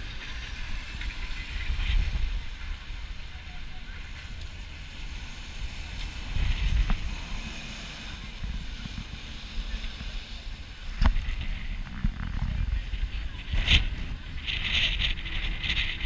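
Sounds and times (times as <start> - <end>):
traffic hissing on wet street: 0.0 - 11.8
wind buffeting the microphone: 0.0 - 16.0.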